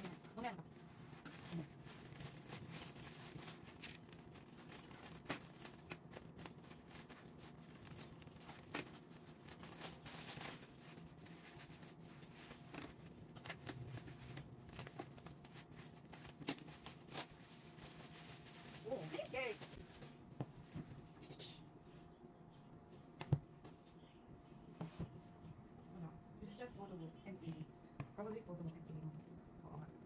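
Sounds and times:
plastic mailer and bubble wrap rustling: 0:00.0 - 0:20.9.

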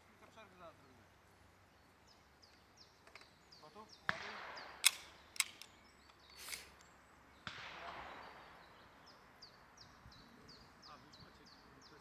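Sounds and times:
small bird chirping: 0:00.6 - 0:07.5
distant bang with echo: 0:04.0 - 0:05.2, 0:07.4 - 0:08.8
handgun shots: 0:04.1 - 0:05.7.

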